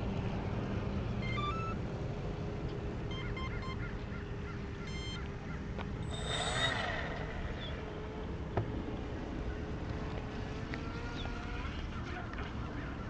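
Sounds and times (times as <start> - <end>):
faint steady hum: 0.0 - 13.0
short bird calls: 3.1 - 8.2.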